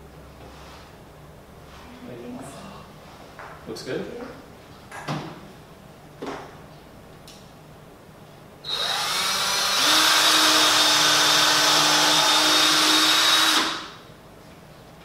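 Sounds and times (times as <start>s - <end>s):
power drill drilling into wood: 8.7s - 14.0s.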